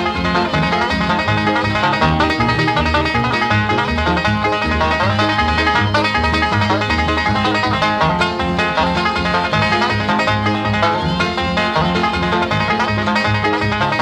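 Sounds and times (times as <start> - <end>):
bluegrass music with picked banjo: 0.0 - 14.0.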